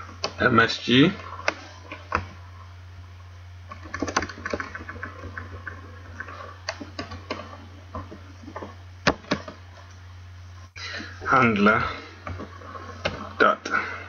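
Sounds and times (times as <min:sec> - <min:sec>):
steady low hum: 0:00.0 - 0:14.0
keyboard typing: 0:03.7 - 0:05.9.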